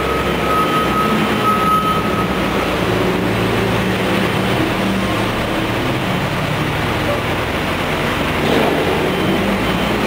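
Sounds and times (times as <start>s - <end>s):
backup alarm beeping: 0.0s - 3.0s
heavy vehicle engines running: 0.0s - 10.0s.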